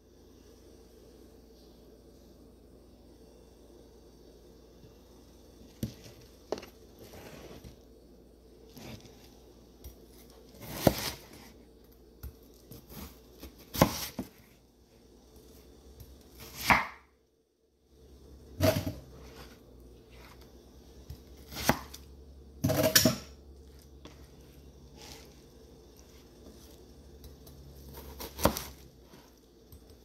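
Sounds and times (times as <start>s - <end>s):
knife slicing watermelon: 10.2s - 11.6s, 12.5s - 14.4s, 21.2s - 22.0s, 27.7s - 29.3s
knife chopping on cutting board: 10.6s - 11.5s, 12.7s - 14.3s, 16.4s - 17.1s, 21.4s - 22.0s, 27.9s - 28.8s.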